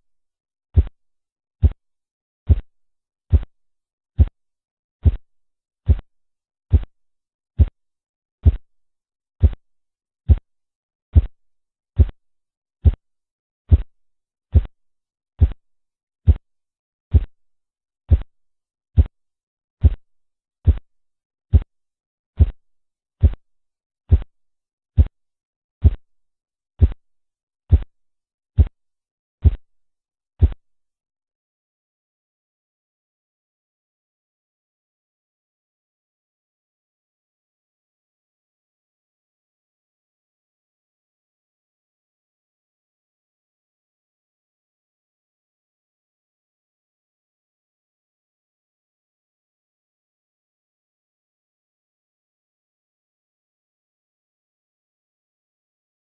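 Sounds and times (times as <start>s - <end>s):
dull taps through stethoscope: 2.5s - 2.7s, 5.0s - 5.2s, 5.9s - 6.1s, 6.7s - 7.0s, 8.4s - 8.7s, 9.4s - 9.6s, 11.2s - 11.4s, 12.0s - 12.2s, 13.7s - 13.9s, 14.6s - 14.8s, 15.4s - 15.6s, 17.1s - 17.4s, 20.7s - 20.9s, 23.2s - 23.4s, 24.1s - 24.3s, 26.8s - 27.0s, 27.7s - 27.9s, 29.4s - 29.6s, 30.4s - 30.6s.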